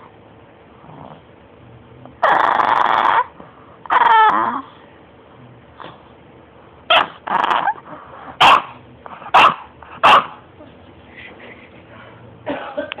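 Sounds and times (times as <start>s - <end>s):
dog barking and yipping: 6.9s - 7.8s, 8.4s - 10.4s.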